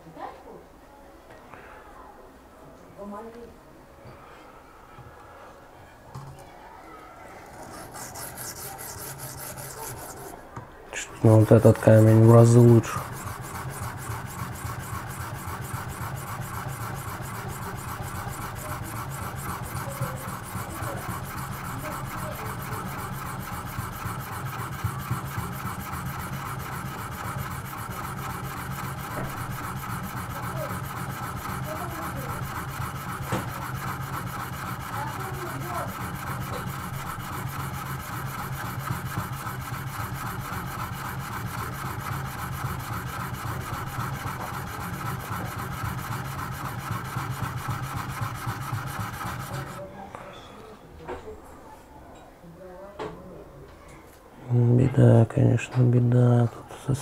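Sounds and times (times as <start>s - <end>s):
sharpening stone rasping on knife: 7.6s - 10.4s, 12.1s - 49.8s.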